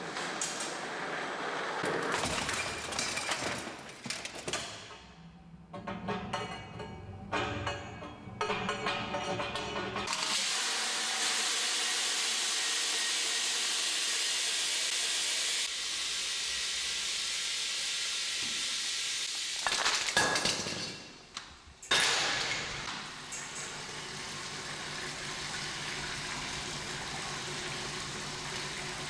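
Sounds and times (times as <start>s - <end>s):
kinetic sculpture hissing: 10.4s - 19.6s.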